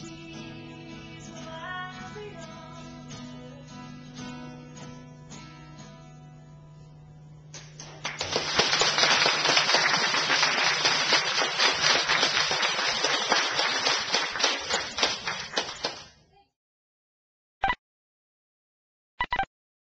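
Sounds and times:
audience applause: 7.6s - 16.2s.

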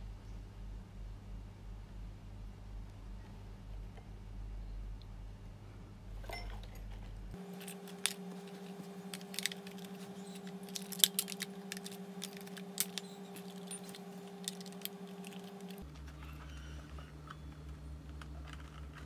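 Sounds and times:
faint steady hum: 0.0s - 19.0s
plastic clicks and scrapes: 7.4s - 19.0s.

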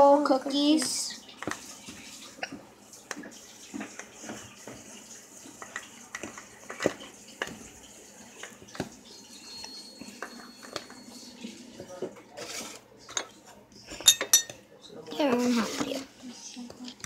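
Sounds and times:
spoon scraping plastic bowl: 8.4s - 14.0s.

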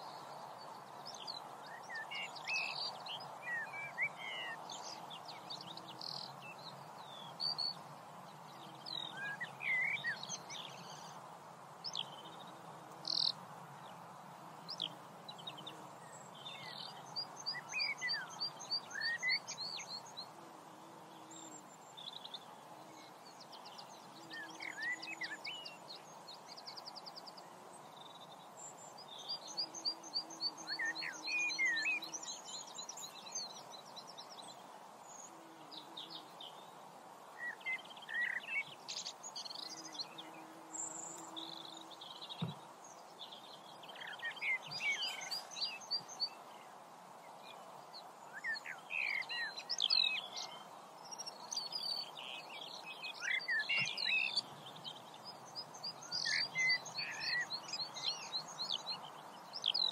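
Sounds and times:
steady background hiss: 0.0s - 59.9s
birds singing and calling: 14.7s - 20.3s, 21.2s - 27.3s, 27.9s - 36.7s, 37.4s - 46.7s, 47.4s - 59.9s.

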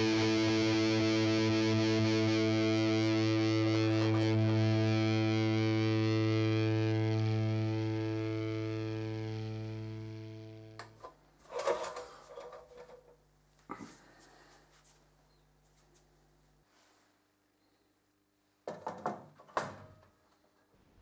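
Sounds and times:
distorted held chord: 0.0s - 11.0s.

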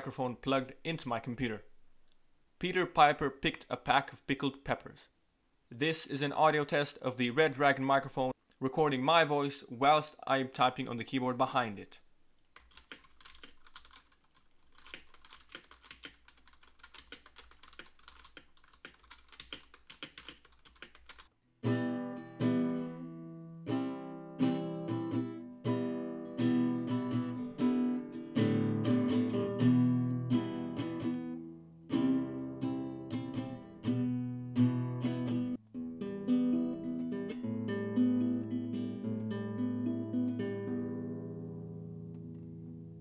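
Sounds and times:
faint keyboard typing: 12.4s - 21.3s
acoustic guitar chords: 21.6s - 43.0s.

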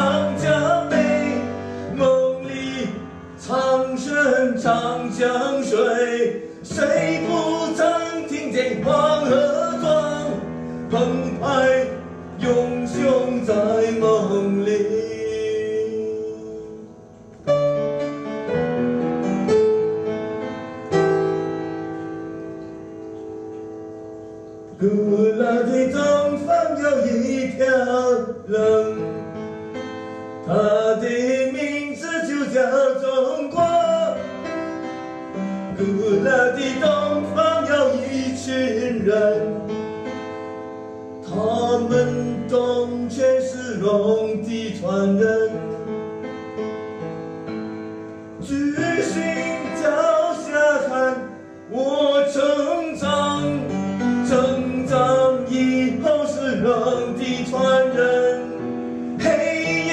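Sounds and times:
man singing: 0.0s - 17.0s, 24.8s - 29.5s, 30.4s - 34.6s, 35.7s - 39.8s, 41.2s - 46.0s, 48.4s - 59.9s
piano: 0.0s - 59.9s.

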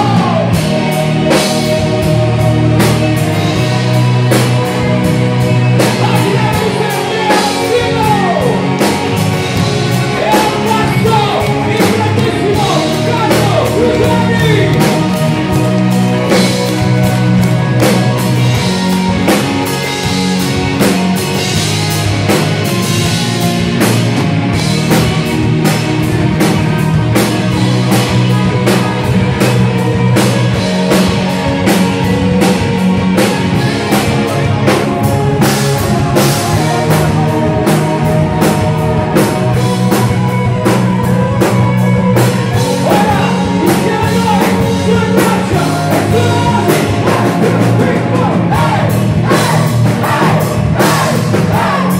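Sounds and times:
lead singer's voice: 0.0s - 3.9s, 4.6s - 18.6s, 42.4s - 51.9s
bass guitar: 0.0s - 51.9s
distorted electric guitars: 0.0s - 51.9s.

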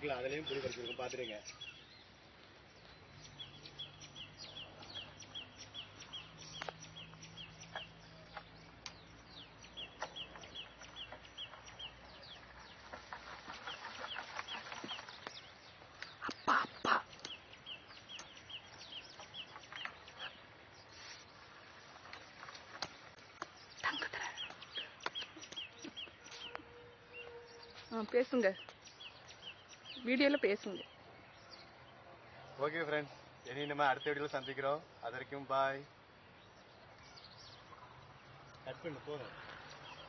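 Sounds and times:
faint scattered clicks: 6.0s - 9.2s, 17.1s - 20.4s, 22.0s - 26.6s.

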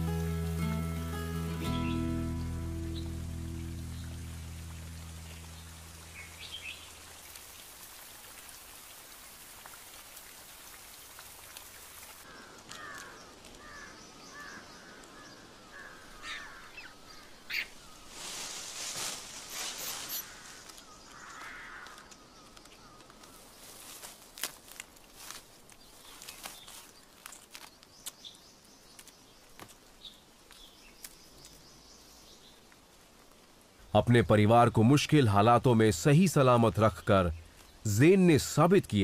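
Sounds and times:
rain falling on foliage: 0.0s - 39.0s
rustling and snapping branches: 12.3s - 13.9s, 18.1s - 31.7s.

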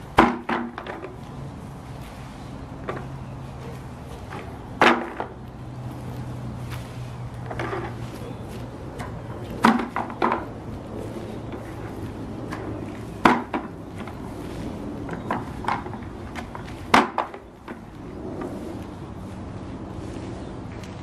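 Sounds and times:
plastic vacuum body knocking on grass: 0.1s - 1.2s, 12.5s - 14.2s.

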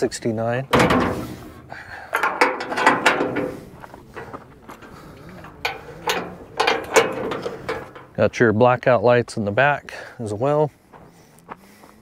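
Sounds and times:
metal latch and chain rattling: 0.6s - 8.4s.

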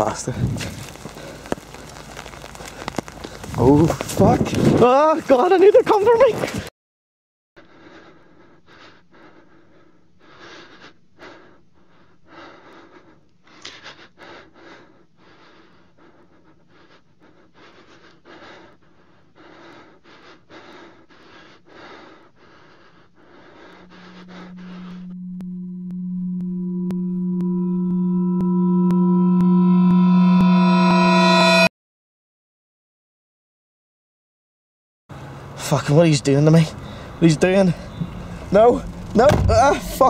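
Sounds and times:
heavy panting breaths: 7.6s - 25.0s
low steady hum: 23.5s - 31.7s, 36.7s - 40.0s
loud electronic drone: 23.7s - 31.7s.

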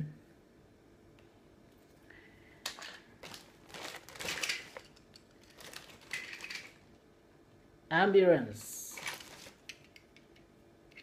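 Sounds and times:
toy packaging crinkling: 2.7s - 6.9s, 8.9s - 10.0s.

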